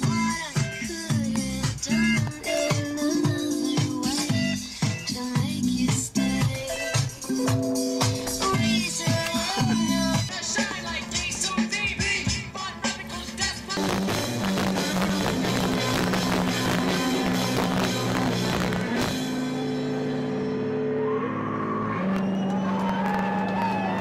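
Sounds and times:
rock music with drums: 0.0s - 20.8s.

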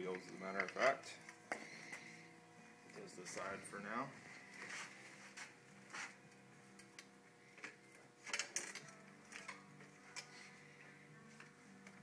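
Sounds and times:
faint background music: 0.0s - 12.0s
metallic clicks of bicycle parts: 6.8s - 10.3s.

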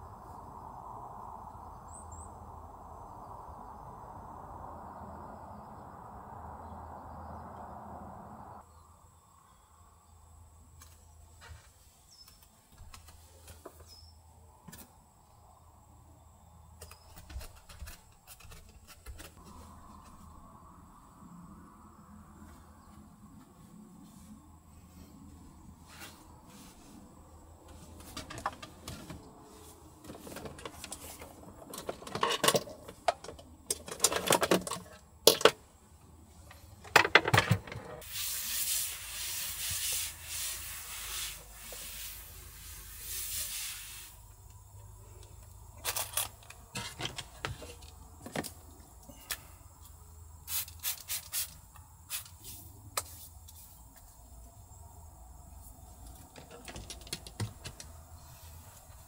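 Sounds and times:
steady hiss: 38.0s - 44.6s, 50.4s - 54.1s.

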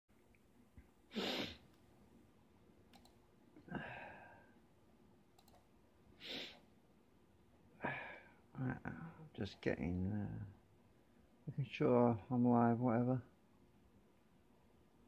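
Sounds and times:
person breathing out: 6.2s - 6.6s.

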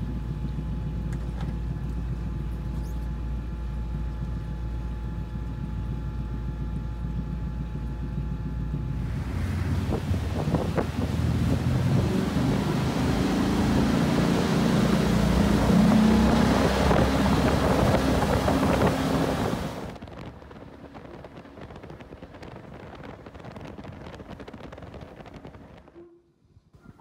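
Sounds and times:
boat engine hum: 0.0s - 26.2s
wind on microphone: 8.9s - 26.0s
rushing water: 9.0s - 20.0s.

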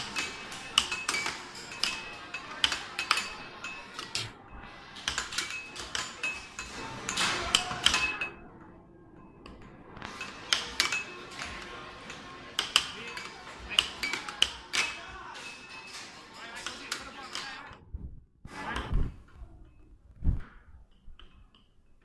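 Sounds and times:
air hockey puck and mallets clacking: 0.0s - 8.4s, 9.4s - 17.6s.

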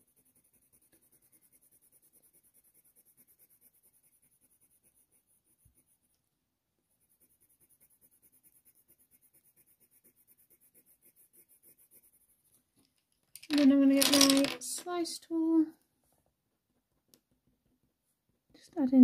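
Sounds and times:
colour pencil strokes on paper: 0.0s - 12.7s.

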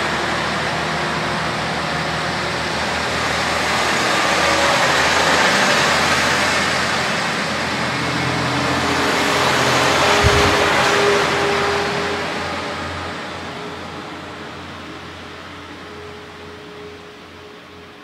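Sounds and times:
train wheels rolling on rails: 0.0s - 13.7s
diesel railcar engine under load: 0.0s - 18.0s.

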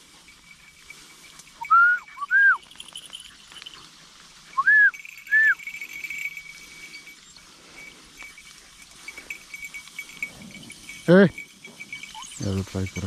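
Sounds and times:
person whistling to dogs: 1.6s - 2.7s, 4.6s - 5.6s.

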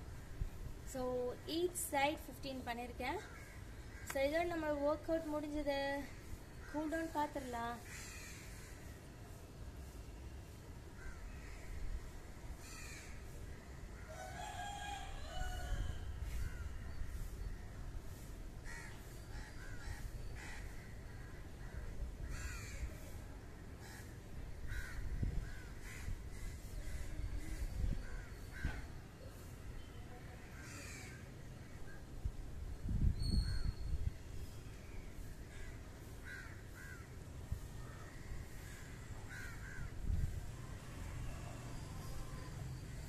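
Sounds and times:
crows cawing: 3.2s - 4.2s, 7.8s - 8.9s, 11.0s - 11.9s, 12.6s - 14.8s, 18.6s - 23.0s, 23.8s - 27.2s, 28.0s - 28.9s, 30.5s - 31.2s, 35.5s - 37.2s, 37.9s - 40.0s.

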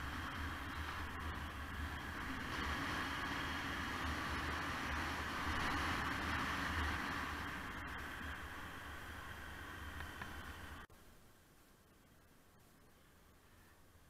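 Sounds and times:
wind buffeting microphone: 0.0s - 10.9s
wind and road noise: 0.0s - 14.0s.

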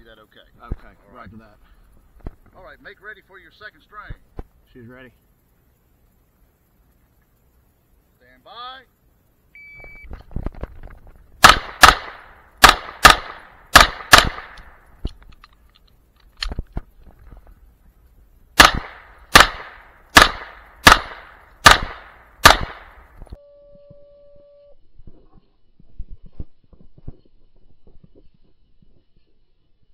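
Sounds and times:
handgun shots: 11.4s - 14.8s, 18.6s - 23.0s.

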